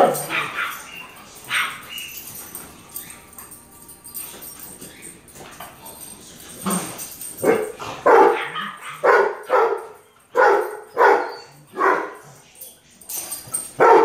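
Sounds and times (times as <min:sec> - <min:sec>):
dog barking: 0:00.0 - 0:02.0, 0:07.4 - 0:12.2, 0:13.8 - 0:14.0.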